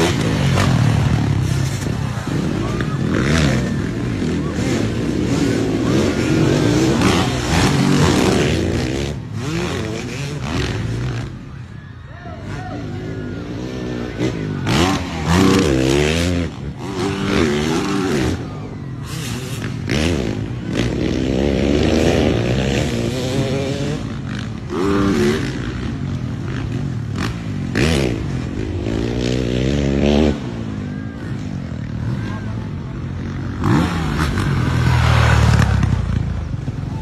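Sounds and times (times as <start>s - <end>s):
dirt bike engines revving: 0.0s - 37.0s.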